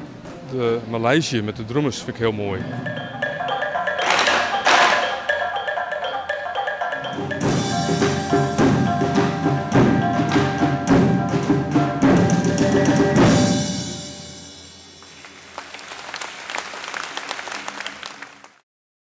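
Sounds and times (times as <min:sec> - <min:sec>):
tuned tones ringing: 0:02.6 - 0:12.5
large drums beaten with sticks: 0:07.2 - 0:14.1
audience applause: 0:15.0 - 0:18.6.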